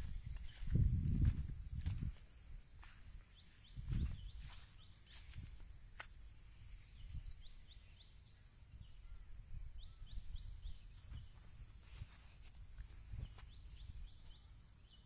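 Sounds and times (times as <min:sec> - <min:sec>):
low rumble on microphone: 0:00.0 - 0:02.3
high insect drone: 0:00.0 - 0:15.0
bird chirping: 0:06.6 - 0:11.5.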